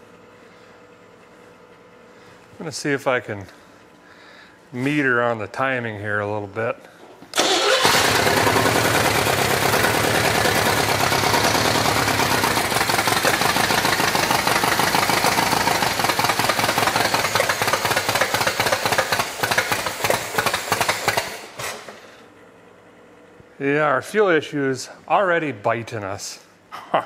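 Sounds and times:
engine stumbling and dying: 0:07.4 - 0:21.5
tractor engine running rough: 0:07.4 - 0:21.5.

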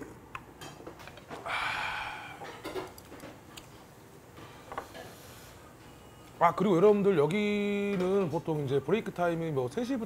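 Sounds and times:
breathy rush of air: 0:01.4 - 0:02.6.

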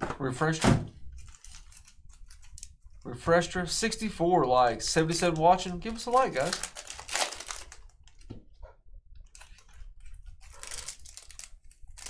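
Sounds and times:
wrappers rustling and crinkling: 0:01.1 - 0:03.0, 0:05.0 - 0:08.2, 0:09.3 - 0:12.0.

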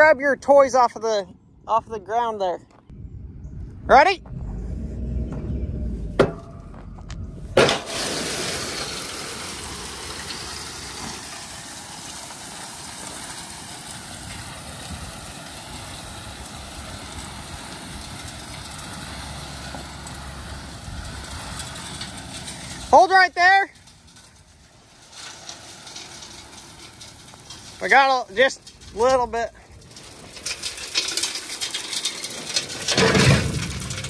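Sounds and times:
truck engine rumble: 0:00.0 - 0:34.0
gravel pouring onto ground: 0:07.8 - 0:23.5, 0:24.3 - 0:34.0.

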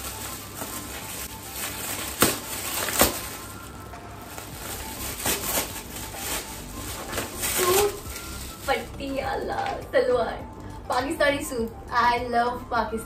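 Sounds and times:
foil gift wrap crinkling and tearing: 0:00.0 - 0:09.8
background music: 0:00.0 - 0:13.0.

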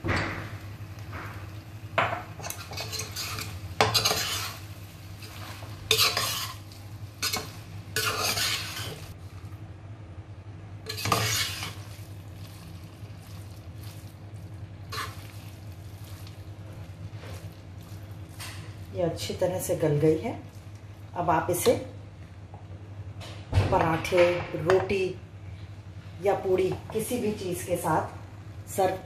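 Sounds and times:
spoon scraping a pan: 0:02.0 - 0:09.2, 0:10.9 - 0:14.2, 0:14.9 - 0:18.8.

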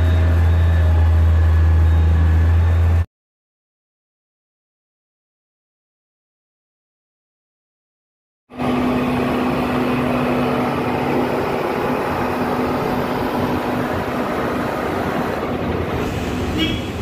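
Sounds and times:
diesel engine running: 0:00.0 - 0:03.0, 0:08.5 - 0:17.0.

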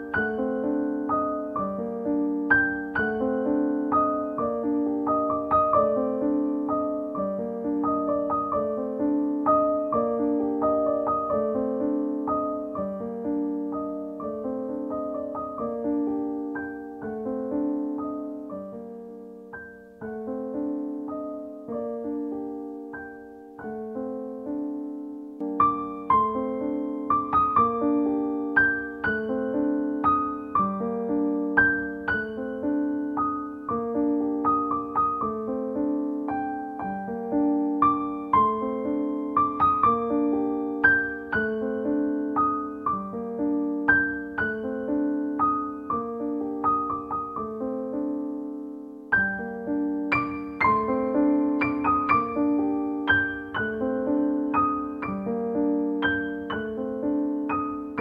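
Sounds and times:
gentle piano music: 0:00.0 - 0:58.0.

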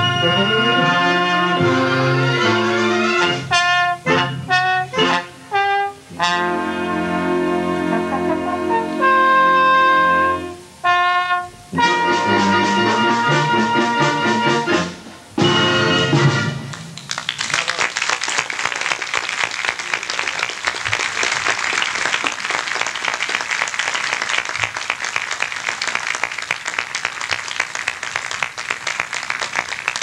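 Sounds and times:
audience applauding: 0:16.6 - 0:30.0.

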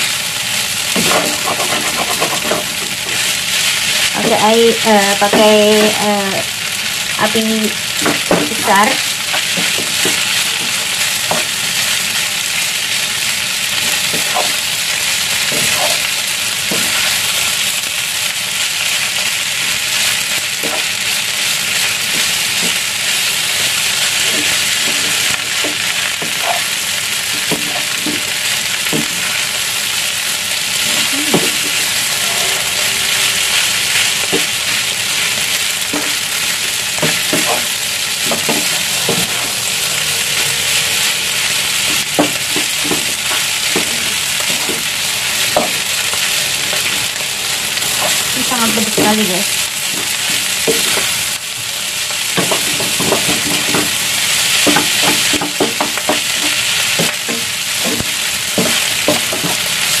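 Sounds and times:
rice sizzling in a frying pan: 0:00.0 - 1:00.0
wooden spatula scraping a pan: 0:00.9 - 0:06.0, 0:13.8 - 0:17.6, 0:20.0 - 0:29.7, 0:30.7 - 0:51.3.

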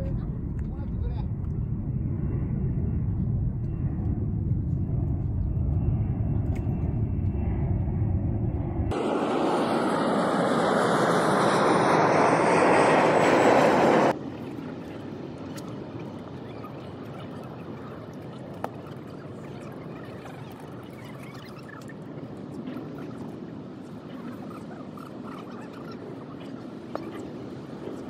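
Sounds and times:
faint falling whine: 0:00.0 - 0:14.9
aircraft rushing noise: 0:00.0 - 0:17.1
aircraft low rumble: 0:00.0 - 0:28.0.

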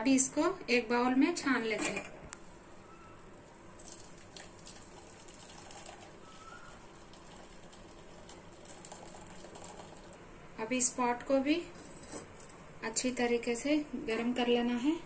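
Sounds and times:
tea trickling through strainer: 0:03.4 - 0:10.3.

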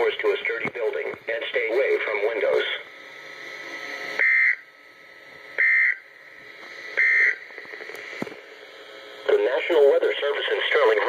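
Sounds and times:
digital data tone bursts: 0:06.9 - 0:07.5.

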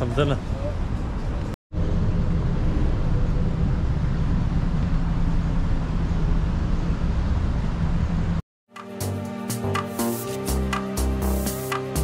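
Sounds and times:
city traffic rumble: 0:00.0 - 0:08.4.

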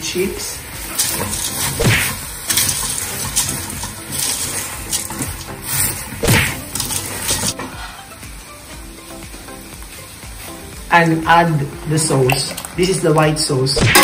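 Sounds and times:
spoon stirring crunchy food in pot: 0:00.8 - 0:07.6.

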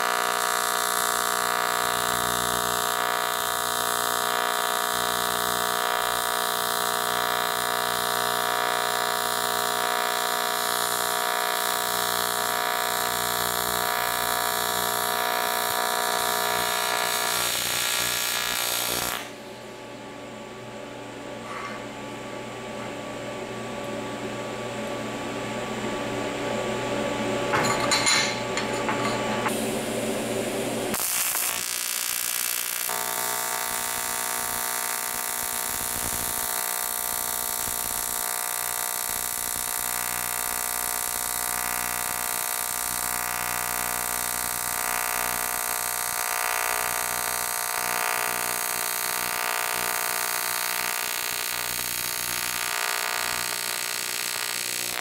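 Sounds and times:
sharp crackle: 0:00.0 - 0:19.4, 0:31.0 - 0:55.0
welding arc buzzing: 0:00.0 - 0:19.5, 0:30.9 - 0:55.0.

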